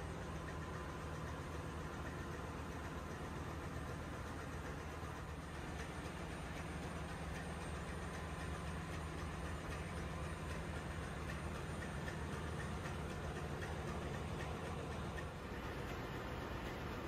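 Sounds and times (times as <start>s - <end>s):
machinery drone and hiss: 0.0s - 17.0s.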